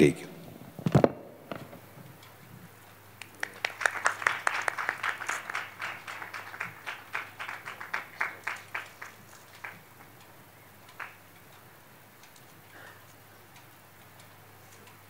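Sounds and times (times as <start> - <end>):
audience clapping: 3.2 - 10.1, 10.9 - 11.2.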